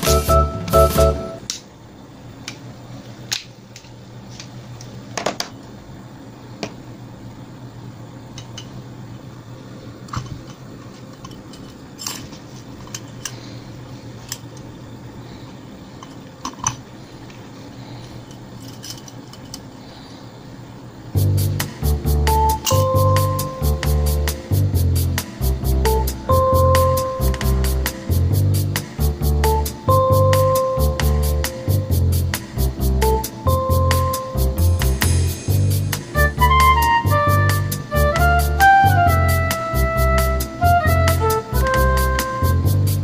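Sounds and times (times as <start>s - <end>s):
music: 0.0s - 1.4s, 21.2s - 43.0s
steady low hum: 0.0s - 43.0s
light metal clicks and clinks: 18.2s - 19.7s.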